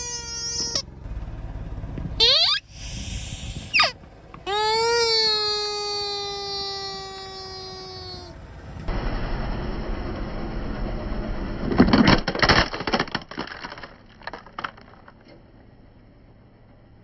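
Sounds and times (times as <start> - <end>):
plastic cracking and snapping: 11.8 - 15.3.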